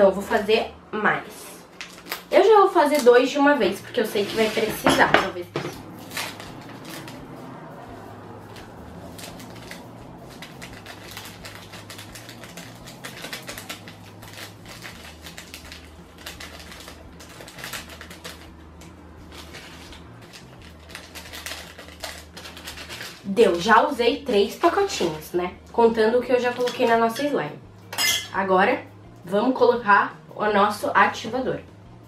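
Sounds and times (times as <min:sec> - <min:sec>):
low steady hum: 0:00.0 - 0:32.0
plastic sachets crinkling: 0:01.7 - 0:03.2, 0:05.9 - 0:07.4, 0:08.5 - 0:23.7.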